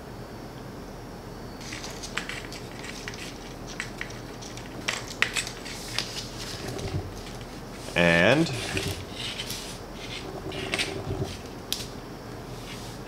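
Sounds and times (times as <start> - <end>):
metal pipe fittings scraping: 1.6 - 11.5.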